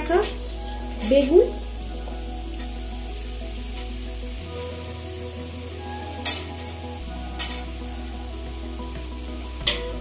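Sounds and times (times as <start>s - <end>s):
vegetables sizzling in hot oil: 0.0s - 10.0s
metal spatula scraping pan: 7.4s - 7.7s.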